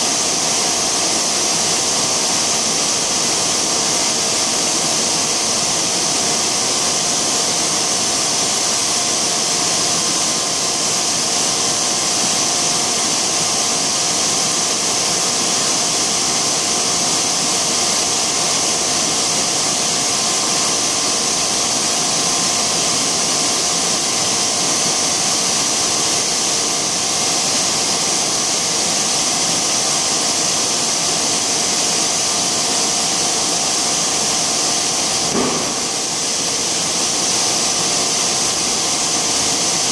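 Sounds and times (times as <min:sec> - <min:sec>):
blow moulding machine drone: 0:30.3 - 0:39.0.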